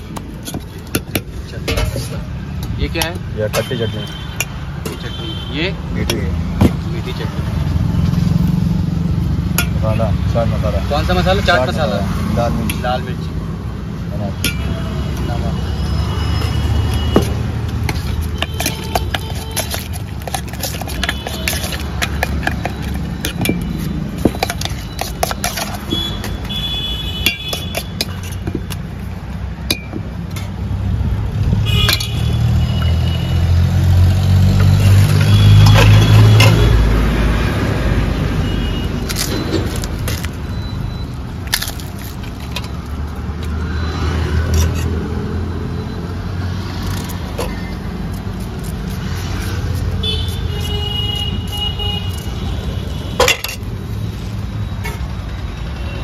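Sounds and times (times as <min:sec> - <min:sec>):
utensils clinking on steel bowls: 0:00.0 - 0:05.1, 0:09.4 - 0:10.1, 0:14.3 - 0:30.6, 0:31.8 - 0:33.0, 0:34.6 - 0:37.0, 0:44.2 - 0:45.2, 0:46.5 - 0:50.8, 0:51.4 - 0:55.4
traffic rumble: 0:00.0 - 0:56.0
vehicle passing: 0:32.3 - 0:40.4, 0:42.1 - 0:50.0.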